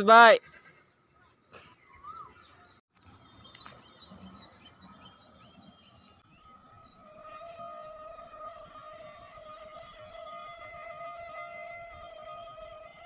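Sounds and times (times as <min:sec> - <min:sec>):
bird chirping: 0:00.6 - 0:13.0
quiet music with wavering note: 0:06.4 - 0:13.0.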